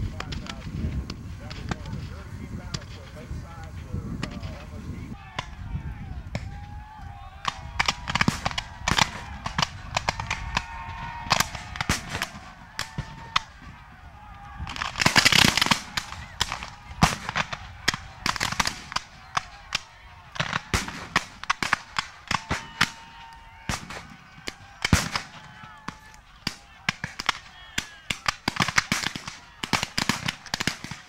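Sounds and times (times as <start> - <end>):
musket shots: 7.4 - 13.8, 14.5 - 31.0.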